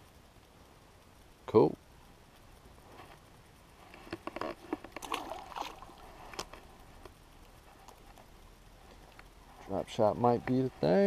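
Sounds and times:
river background: 0:00.0 - 0:11.0
water splashing and sloshing: 0:04.6 - 0:07.1.

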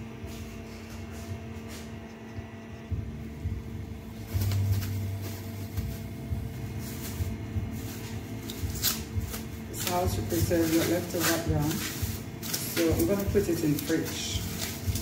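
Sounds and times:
steady electrical hum: 0:00.0 - 0:15.0
plastic bag rustling and crinkling: 0:04.1 - 0:15.0.

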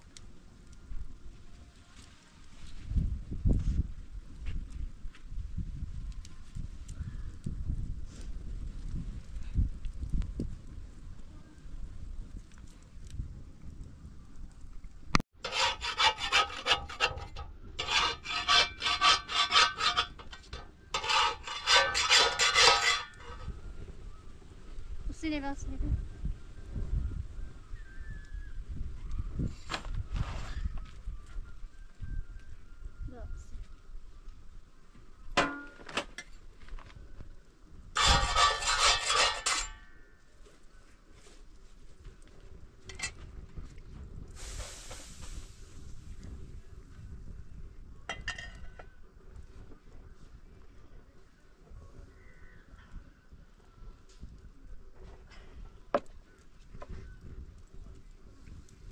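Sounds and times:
metal spatula scraping iron griddle: 0:15.4 - 0:23.6, 0:38.0 - 0:40.0
metal cookware clanking: 0:15.5 - 0:23.5, 0:38.0 - 0:39.8.

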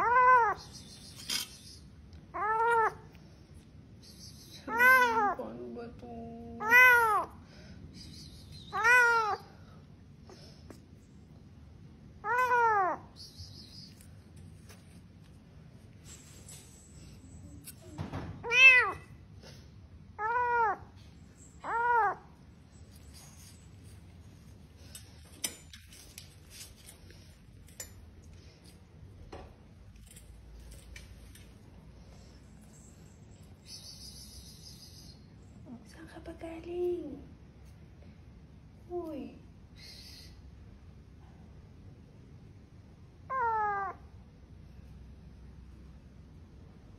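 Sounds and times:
cat meowing: 0:00.0 - 0:00.7, 0:02.3 - 0:03.1, 0:04.7 - 0:05.4, 0:06.6 - 0:07.4, 0:08.7 - 0:09.5, 0:12.2 - 0:13.2, 0:18.4 - 0:19.2, 0:20.2 - 0:21.0, 0:21.6 - 0:22.4, 0:43.3 - 0:44.1.

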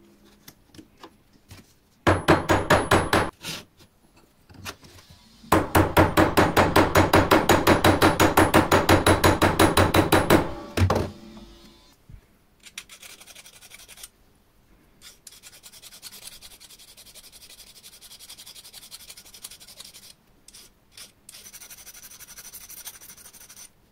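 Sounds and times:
hammer striking metal on anvil: 0:02.1 - 0:03.3, 0:05.5 - 0:10.9.

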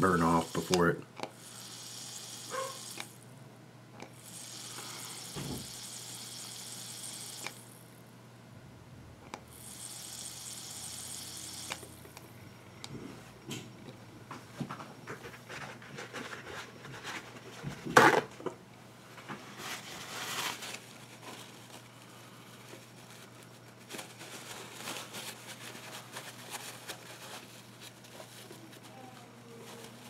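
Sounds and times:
paper towel rustling: 0:19.2 - 0:30.0.

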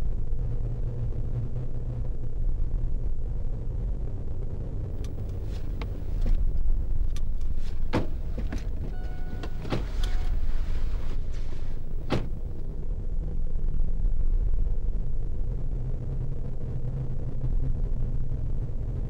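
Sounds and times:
car cabin rumble: 0:03.0 - 0:15.3
steady beep-like tone: 0:08.5 - 0:10.6.

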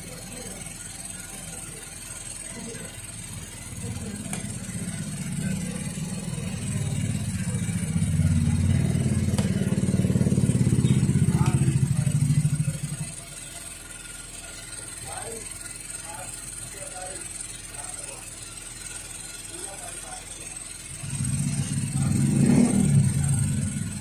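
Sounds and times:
vehicle engine passing by: 0:21.0 - 0:24.0.

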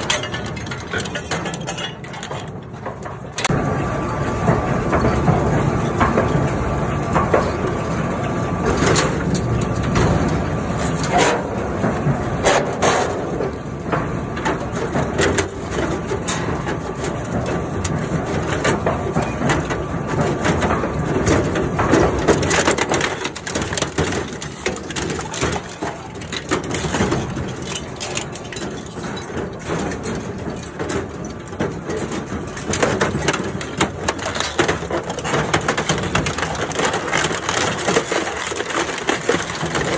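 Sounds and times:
metal snaps and clanks: 0:00.0 - 0:03.5, 0:14.4 - 0:39.9
shredder grinding crunch: 0:15.9 - 0:39.9.

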